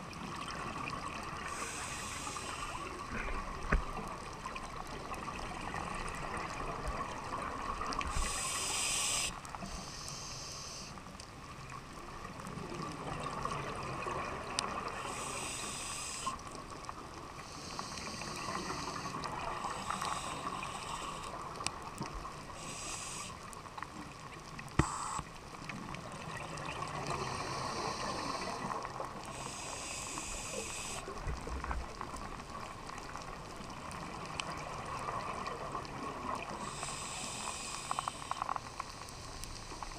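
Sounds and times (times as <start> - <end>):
low underwater hum: 0.0 - 39.9
scuba air bubbles: 24.5 - 38.5.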